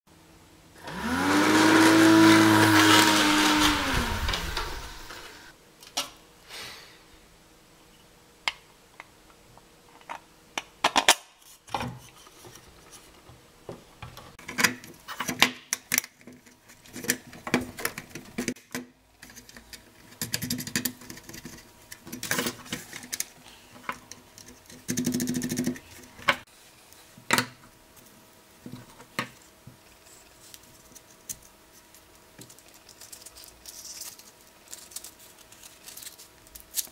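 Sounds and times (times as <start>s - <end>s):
fan whine: 0.7s - 5.6s.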